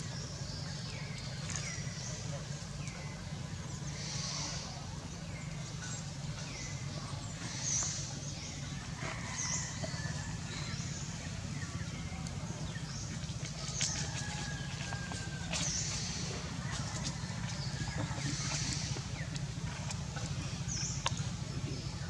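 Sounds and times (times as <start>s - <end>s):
clicking and rustling of leaves: 0.2s - 3.4s, 11.4s - 22.0s.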